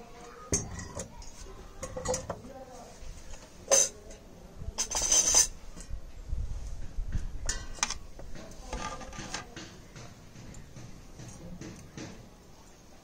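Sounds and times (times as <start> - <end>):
utensils and dishes clattering: 0.5 - 2.5, 3.3 - 4.2, 4.8 - 5.9, 7.4 - 12.2.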